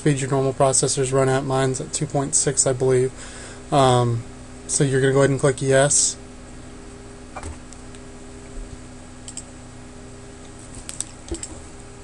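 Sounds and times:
faint steady hum: 0:00.0 - 0:12.0
computer mouse clicks: 0:09.2 - 0:09.5, 0:10.8 - 0:11.6.

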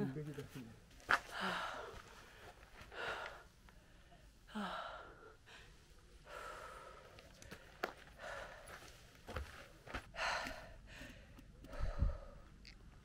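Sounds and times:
person breathing hard: 0:01.2 - 0:12.6.

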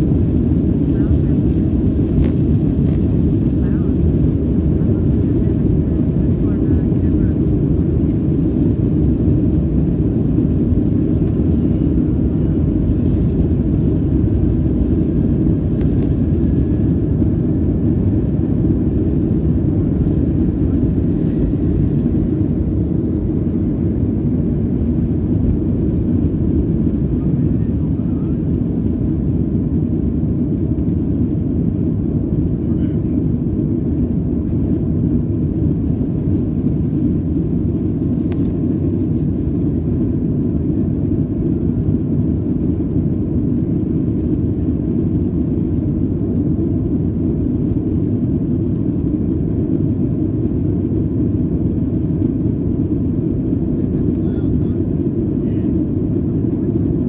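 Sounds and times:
jet cabin engine rumble: 0:00.0 - 0:57.0.

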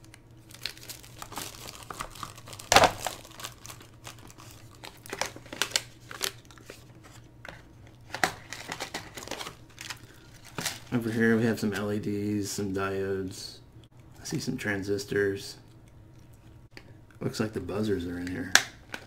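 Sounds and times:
plastic bags crinkling: 0:00.4 - 0:07.0, 0:08.2 - 0:11.2.

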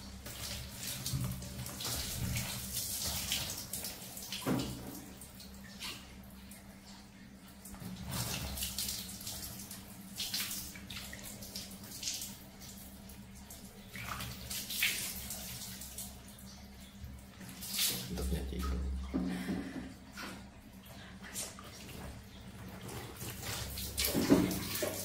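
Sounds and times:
water splashing from a dipper: 0:17.4 - 0:19.2, 0:21.3 - 0:25.0.

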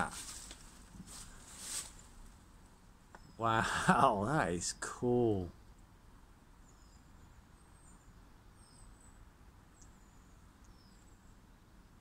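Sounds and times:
small birds chirping: 0:03.0 - 0:12.0.

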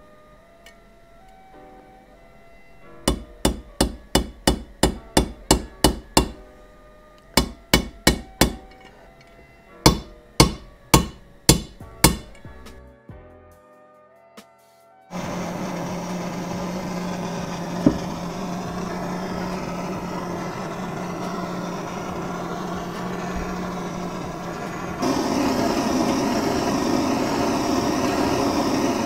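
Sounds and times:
hammer tapping metal bearing: 0:03.1 - 0:06.5, 0:07.2 - 0:08.9, 0:09.9 - 0:12.6.

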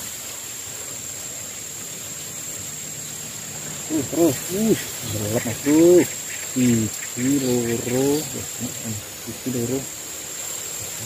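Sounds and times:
high-pitched insect drone: 0:00.0 - 0:11.0
low pitched animal calls: 0:02.1 - 0:09.9.

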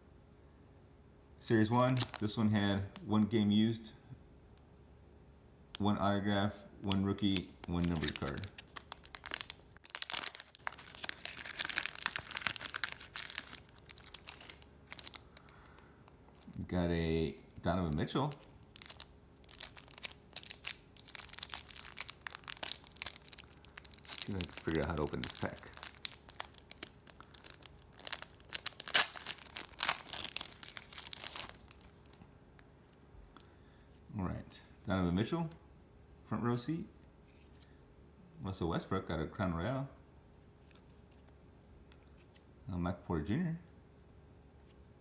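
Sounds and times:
foil pack crinkling: 0:01.8 - 0:02.4, 0:07.2 - 0:32.2.

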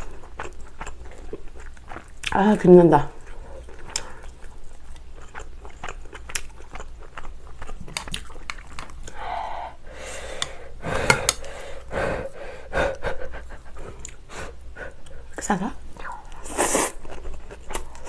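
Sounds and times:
wet chewing: 0:00.0 - 0:09.2, 0:16.3 - 0:18.0.

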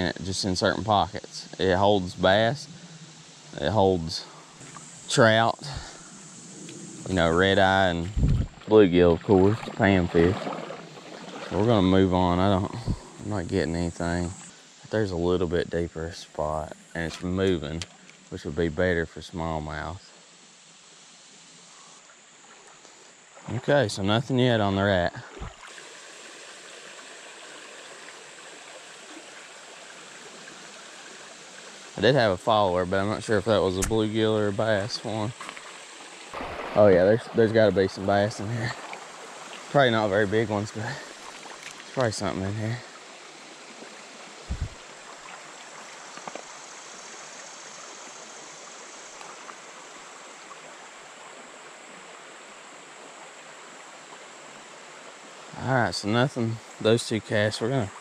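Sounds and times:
creek water rushing: 0:00.0 - 0:19.8, 0:21.7 - 0:58.0
low thump: 0:08.0 - 0:08.6, 0:44.5 - 0:44.8.

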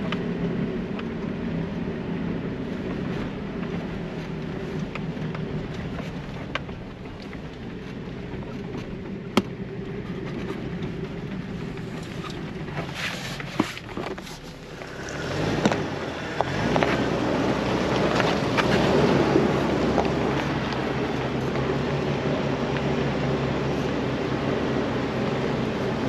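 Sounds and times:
off-road vehicle engine running: 0:00.0 - 0:26.0
tyres crunching over rock and gravel: 0:02.2 - 0:23.9
sharp clicks and knocks: 0:04.8 - 0:17.0.

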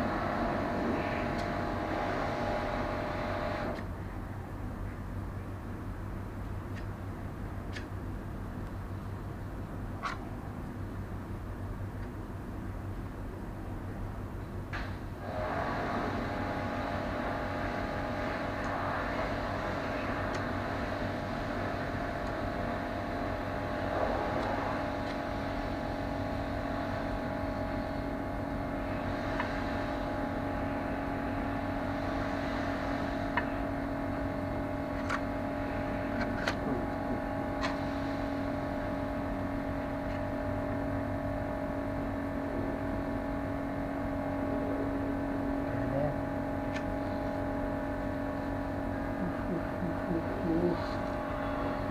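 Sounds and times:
machinery droning: 0:00.0 - 0:04.3, 0:14.8 - 0:51.9.

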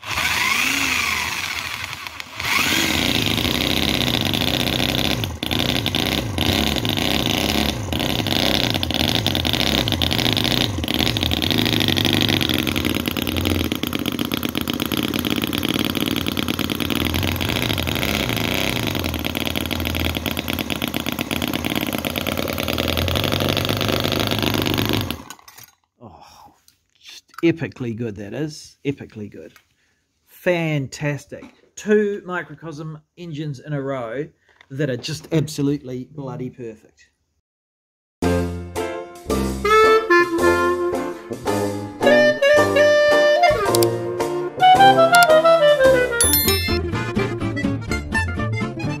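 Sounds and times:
small engine running fast: 0:00.0 - 0:25.5
electric drill spinning: 0:00.0 - 0:25.7.

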